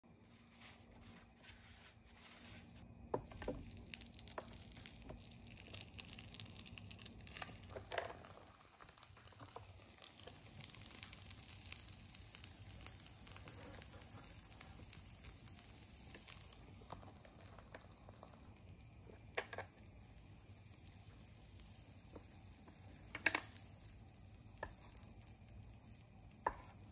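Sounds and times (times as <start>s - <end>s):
paper towel rustling and scraping: 0.2s - 2.8s.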